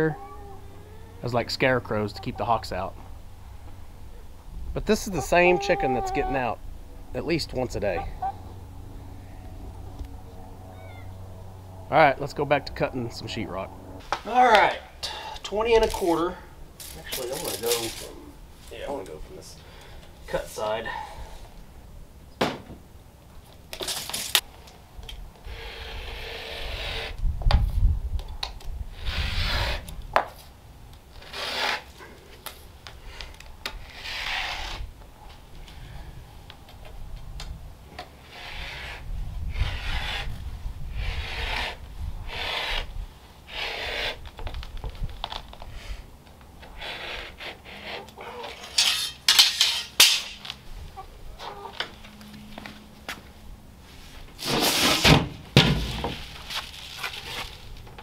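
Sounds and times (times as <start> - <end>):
utility knife scoring drywall: 33.8 - 34.8, 41.0 - 42.9.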